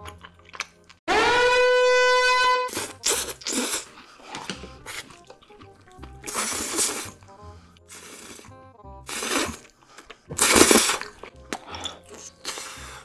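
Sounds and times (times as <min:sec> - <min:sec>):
faint background music: 0:00.0 - 0:01.0, 0:01.6 - 0:13.0
wet slurping and chewing: 0:00.0 - 0:01.0, 0:02.7 - 0:13.0
loud held musical tone: 0:01.1 - 0:09.6.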